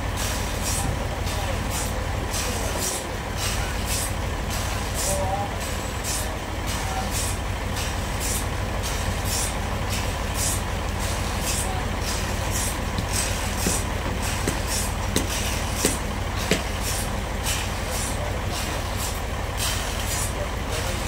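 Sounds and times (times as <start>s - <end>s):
sawmill machinery drone: 0.0s - 21.0s
sharp knocks: 12.9s - 16.8s.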